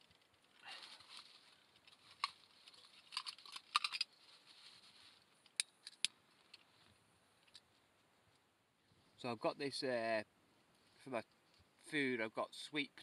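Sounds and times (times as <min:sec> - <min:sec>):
cooking gear clicks and clinks: 0:01.8 - 0:04.1.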